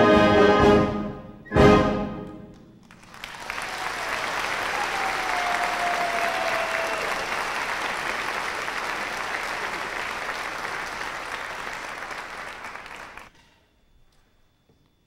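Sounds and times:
audience applauding: 0:02.8 - 0:13.3.

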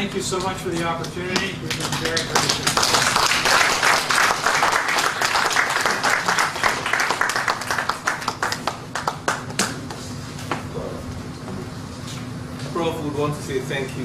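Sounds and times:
audience applauding: 0:01.4 - 0:09.8.

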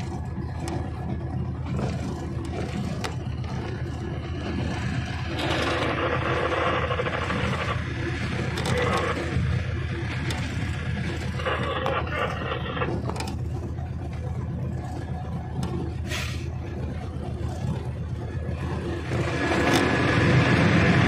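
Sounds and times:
locomotive engine hum: 0:00.0 - 0:21.0
wheel and rail noise: 0:00.0 - 0:21.0
harsh scraping noise: 0:04.5 - 0:13.4.

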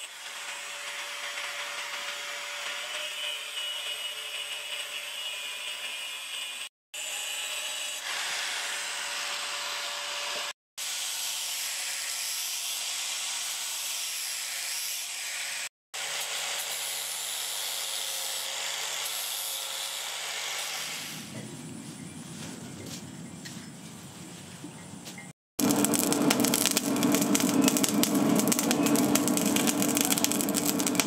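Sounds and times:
angle grinder grinding steel: 0:25.6 - 0:31.0.

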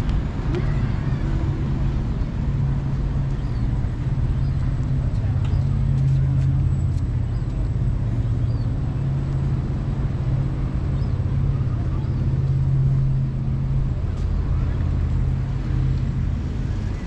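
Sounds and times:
low engine hum: 0:00.0 - 0:17.0
outdoor background noise: 0:00.0 - 0:17.0
faint voices: 0:00.3 - 0:01.8.

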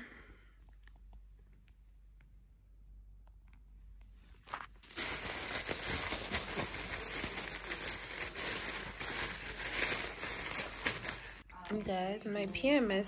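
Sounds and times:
plastic bag crinkling: 0:04.3 - 0:13.0.

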